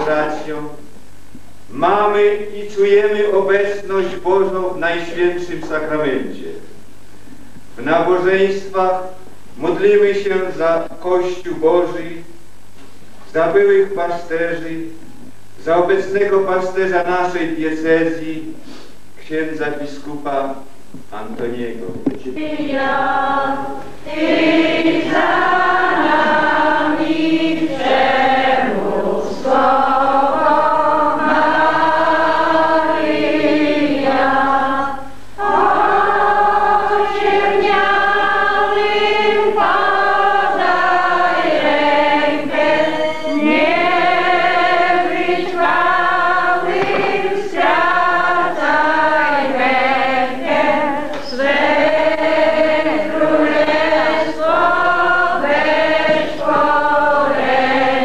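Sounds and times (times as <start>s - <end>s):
congregation singing a hymn: 0.0s - 0.9s, 1.7s - 6.6s, 22.1s - 58.0s.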